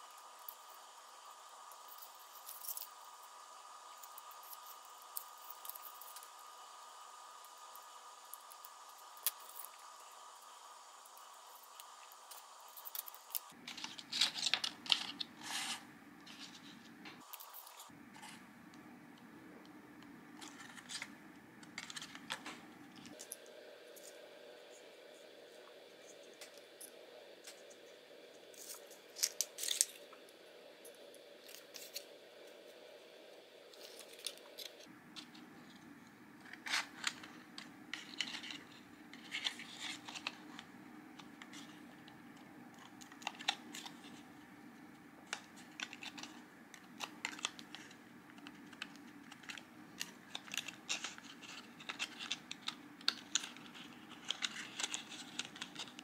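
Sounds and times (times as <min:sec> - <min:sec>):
paper card rustling and scraping: 0:11.8 - 0:18.5, 0:20.3 - 0:23.4, 0:28.5 - 0:30.0, 0:33.8 - 0:44.4, 0:45.3 - 0:56.0.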